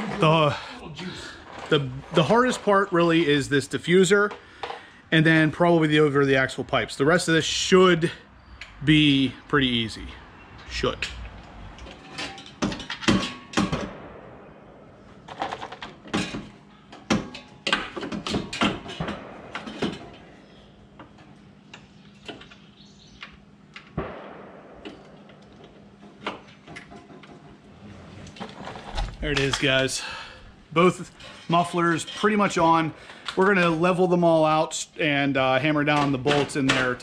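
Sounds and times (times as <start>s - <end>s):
metal exhaust parts clanking: 9.9s - 14.2s.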